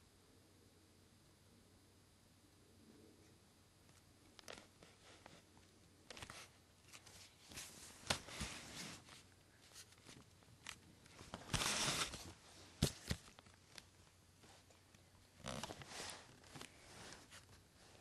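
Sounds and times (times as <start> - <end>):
rustles and taps of movement: 3.8 - 17.7.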